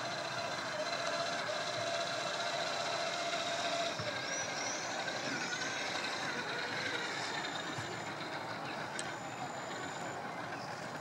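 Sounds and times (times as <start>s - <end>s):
electric motor whining: 0.8s - 10.7s.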